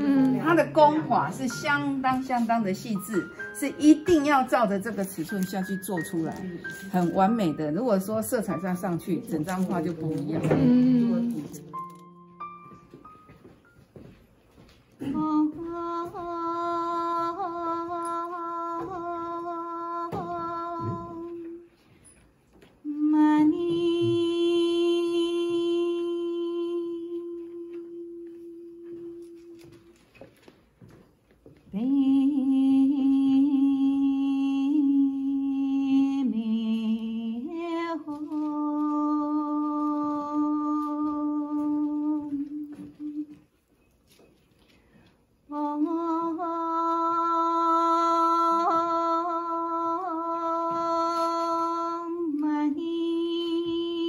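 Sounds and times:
person chanting long held notes: 0.0 - 1.2, 10.6 - 12.0
woman chanting: 0.0 - 11.8, 15.0 - 21.7, 22.8 - 29.9, 31.7 - 43.4, 45.5 - 54.0.

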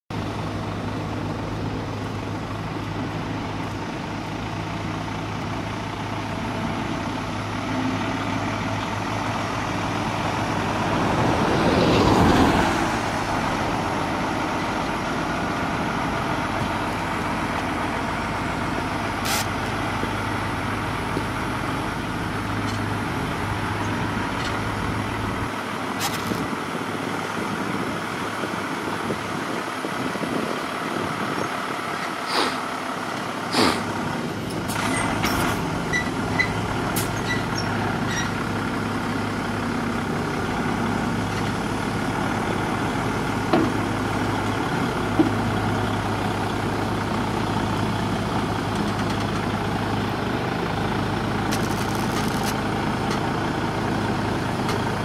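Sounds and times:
diesel engine low hum: 0.1 - 55.0
vehicle passing close: 9.6 - 16.9.

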